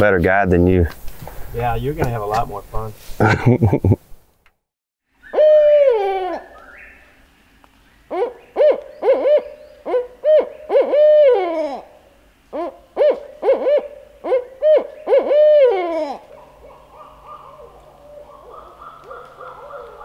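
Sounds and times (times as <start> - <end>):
owl hooting: 5.2 - 7.2, 8.1 - 20.0.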